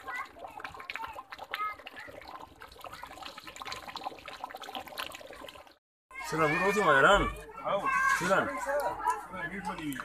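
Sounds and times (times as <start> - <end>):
curry bubbling in a pot: 0.0 - 5.8.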